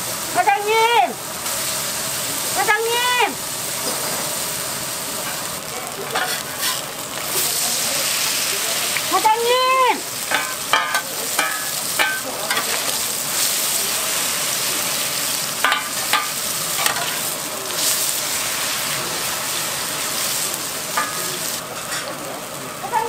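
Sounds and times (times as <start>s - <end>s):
pancakes sizzling in oil: 0.0s - 23.0s.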